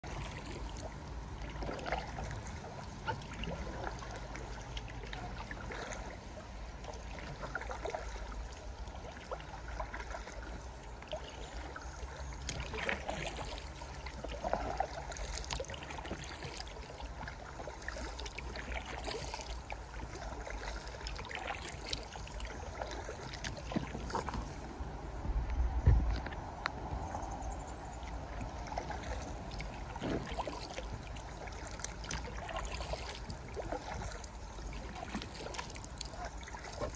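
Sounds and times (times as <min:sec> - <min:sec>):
paddle strokes and water splashes: 0:00.0 - 0:36.9
steady low rumble: 0:22.0 - 0:36.9.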